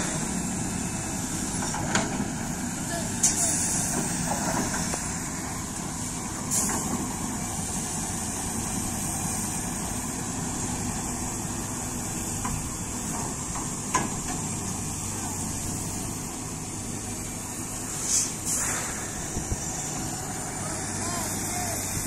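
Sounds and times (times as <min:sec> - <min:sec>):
diesel engine idling: 0:00.0 - 0:22.0
brief hiss: 0:17.9 - 0:19.8.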